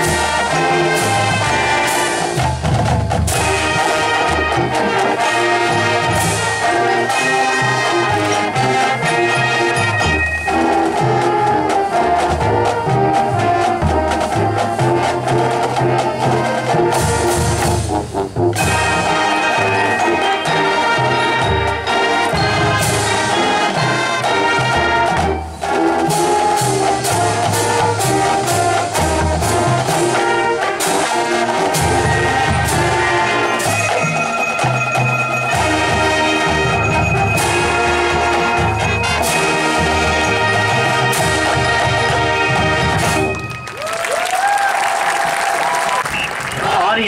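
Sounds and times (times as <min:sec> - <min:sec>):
trumpets and trombones holding chords: 0:00.0 - 0:43.6
marching band playing loudly: 0:00.0 - 0:47.0
drum hits: 0:01.0 - 0:04.1.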